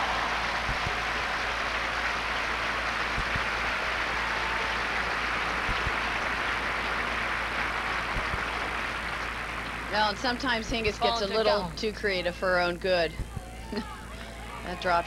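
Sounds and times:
stadium crowd applauding: 0:00.0 - 0:11.4.

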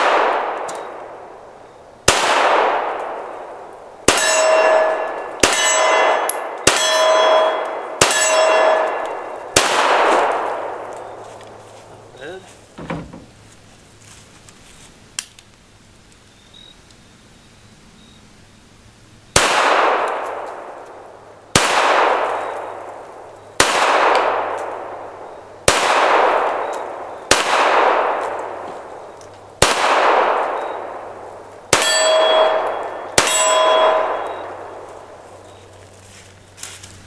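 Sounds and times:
pistol shots echoing: 0:00.0 - 0:01.3, 0:02.0 - 0:11.2, 0:19.4 - 0:35.2
steel target ringing: 0:04.1 - 0:10.8, 0:31.7 - 0:34.8.

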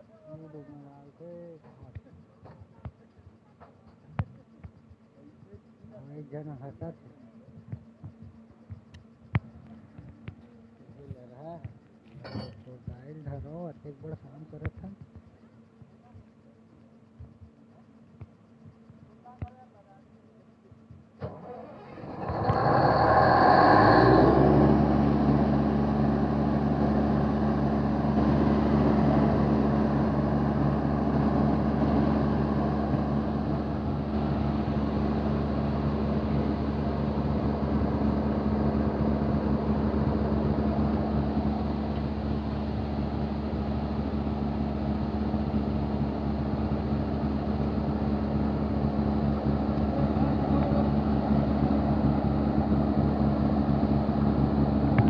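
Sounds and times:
diesel engine starting and droning: 0:21.2 - 0:55.0.

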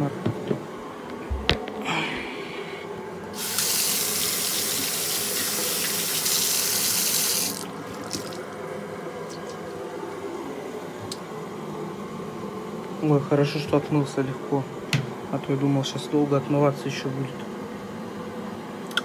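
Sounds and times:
tap water running into sink: 0:03.4 - 0:08.5.

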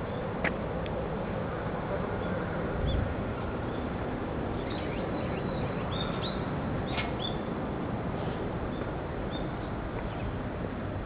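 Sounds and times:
steady background noise: 0:00.0 - 0:11.0
small birds chirping: 0:02.0 - 0:07.5, 0:08.1 - 0:10.5.

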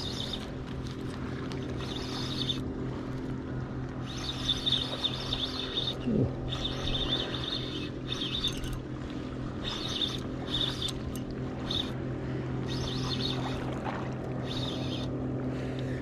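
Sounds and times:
birds chirping: 0:00.0 - 0:00.6, 0:01.7 - 0:02.6, 0:04.0 - 0:15.2
steady low hum: 0:00.0 - 0:16.0
fishing reel cranking: 0:04.0 - 0:08.8, 0:09.6 - 0:12.0.

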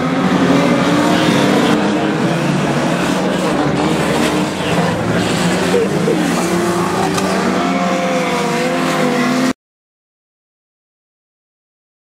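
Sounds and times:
race car engines revving: 0:00.0 - 0:09.6.

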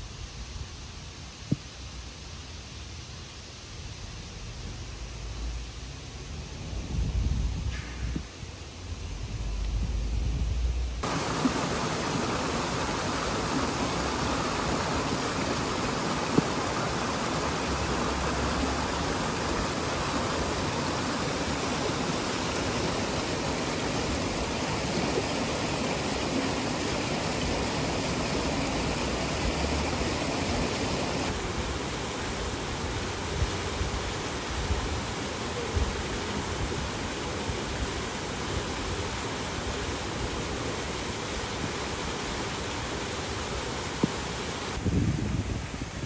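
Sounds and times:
running water rushing: 0:11.0 - 0:46.0.

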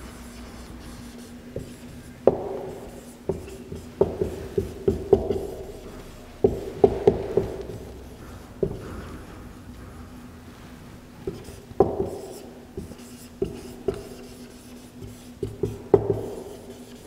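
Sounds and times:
marker tapping and dragging on whiteboard: 0:00.8 - 0:05.8, 0:06.4 - 0:09.1, 0:11.2 - 0:17.0.

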